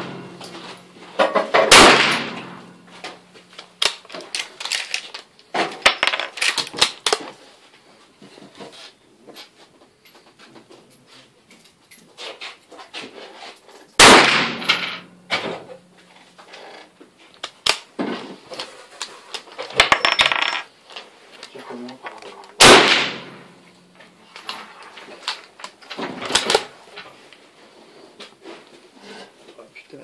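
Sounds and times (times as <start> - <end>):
rifle shots: 1.6 - 2.8, 14.0 - 15.1, 22.6 - 23.5.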